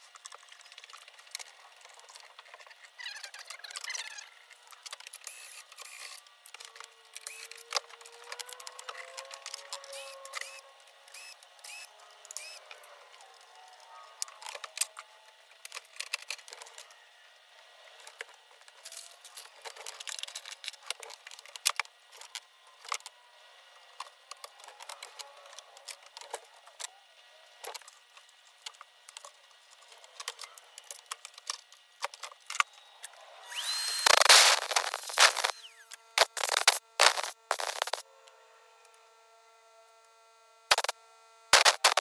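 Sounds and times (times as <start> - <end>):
vacuum motor spinning up: 1.9 - 27.9, 29.7 - 42.0
cordless screwdriver whirring: 7.2 - 12.7, 33.4 - 38.0
clicks and clatter of plastic covers: 18.1 - 23.1.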